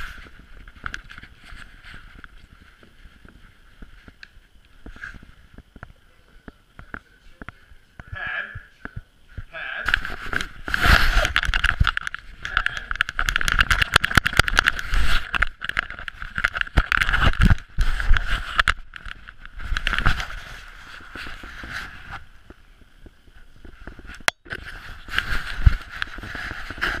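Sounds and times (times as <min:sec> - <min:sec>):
camera rubbing against dog fur: 0:00.0 - 0:04.2, 0:09.8 - 0:22.6, 0:23.6 - 0:27.0.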